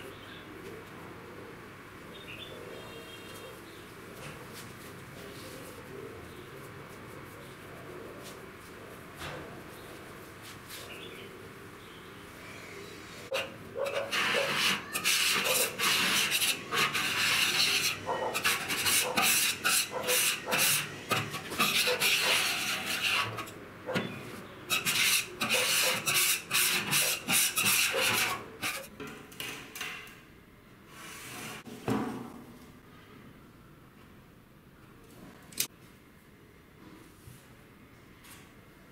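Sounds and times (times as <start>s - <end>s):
hand scraper scraping paint off steel: 13.4s - 28.9s.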